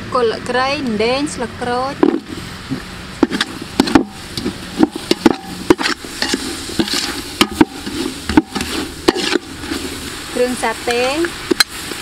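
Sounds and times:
metal ladle scraping a pot: 2.0 - 10.2
food sizzling in hot oil: 2.1 - 12.0.

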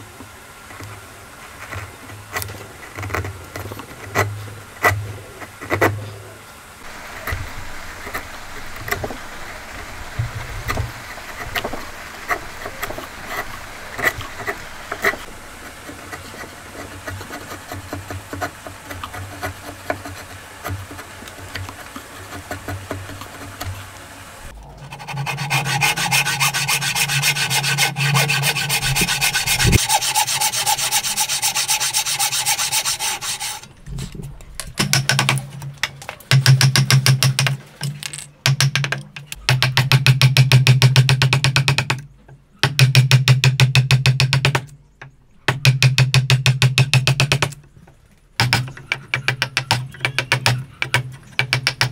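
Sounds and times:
frame saw cutting wood: 6.8 - 33.8
chisel paring wood: 25.5 - 33.6, 34.8 - 44.7, 45.5 - 47.6, 48.4 - 51.9.

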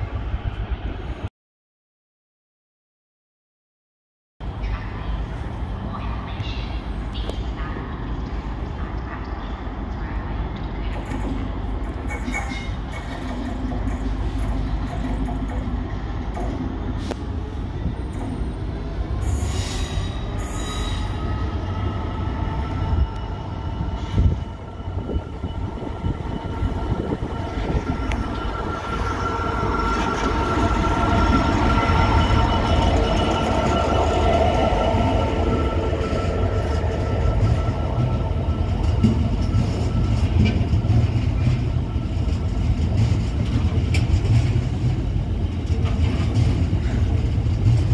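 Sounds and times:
wheels rumbling on rail: 4.4 - 47.9
diesel locomotive engine running: 21.2 - 47.9.

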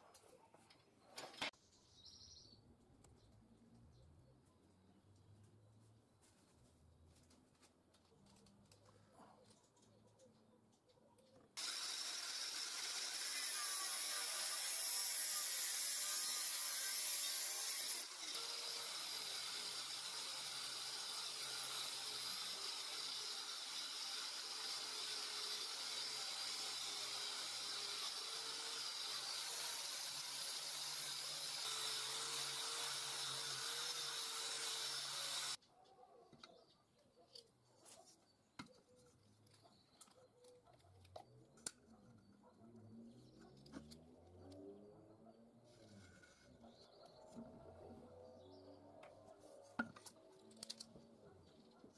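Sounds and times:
angle grinder wire brushing metal: 11.6 - 35.6.

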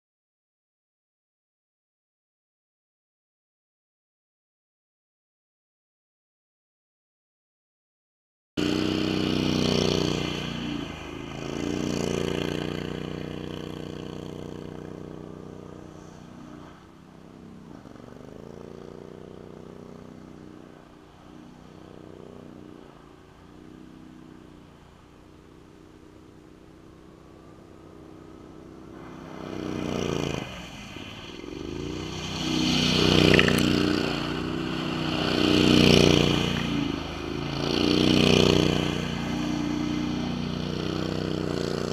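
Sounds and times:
engine running and revving: 8.6 - 41.9
tires crunching over ice: 28.8 - 41.9.

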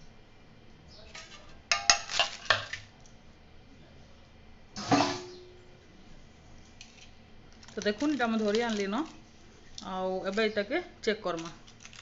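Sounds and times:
metal kitchenware clinking: 1.1 - 2.8.

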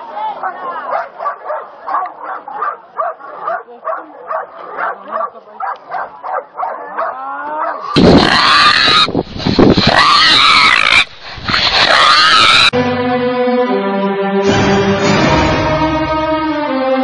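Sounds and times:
dogs barking: 0.4 - 8.7
wild boar squealing: 7.6 - 12.8.

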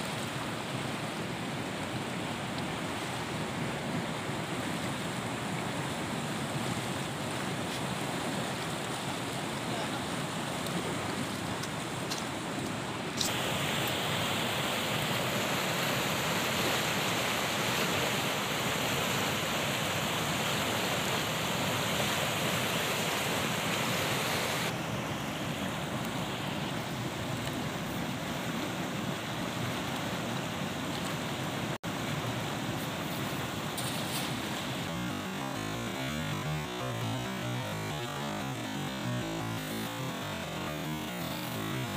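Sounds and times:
fast-flowing river rushing: 0.0 - 41.9
white water pouring over weir: 13.2 - 26.0, 31.9 - 41.9.

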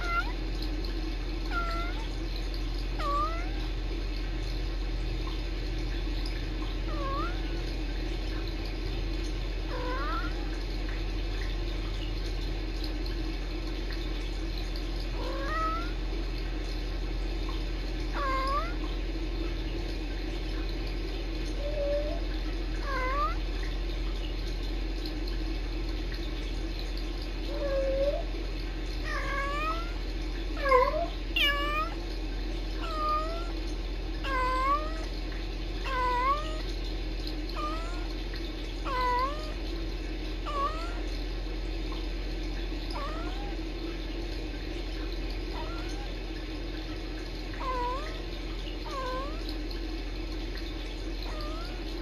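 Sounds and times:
cats trilling and chirping: 0.0 - 0.4, 1.5 - 2.2, 2.8 - 3.8, 15.2 - 16.0, 18.2 - 18.9, 22.8 - 23.4, 29.1 - 30.0, 30.6 - 32.1, 32.8 - 33.6, 34.3 - 35.1, 35.9 - 36.7, 37.5 - 38.2, 38.8 - 39.6, 40.5 - 41.1, 42.9 - 43.6, 47.6 - 49.6.

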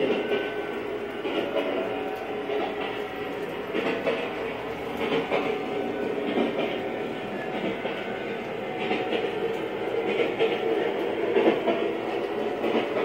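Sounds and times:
model train wheels and motor rumbling: 0.0 - 13.0
wheels clicking over rail joints: 0.0 - 13.0.

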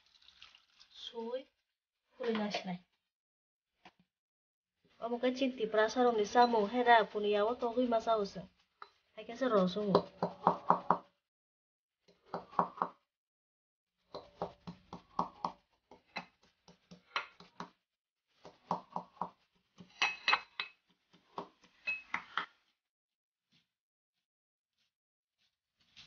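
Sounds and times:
metal pestle knocking in bowl: 9.9 - 11.1.

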